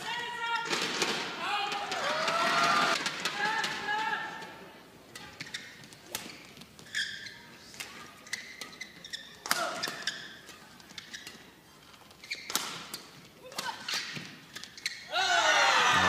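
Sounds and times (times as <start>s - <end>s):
shoes squeaking on court: 5.2s - 15.1s
badminton racket hitting shuttlecock: 7.7s - 11.5s, 12.3s - 14.6s.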